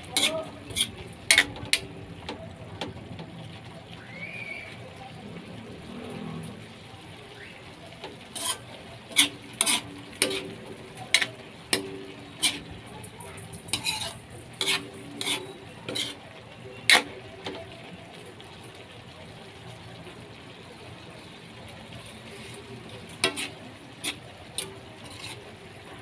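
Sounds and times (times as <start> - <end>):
metal ladle scraping a wok: 0.0 - 1.9, 8.0 - 17.7, 21.9 - 25.8
vegetables sizzling: 0.0 - 26.0.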